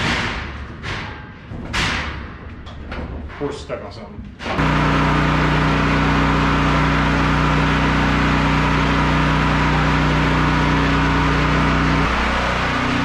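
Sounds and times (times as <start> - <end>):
generator engine humming: 4.6 - 13.0.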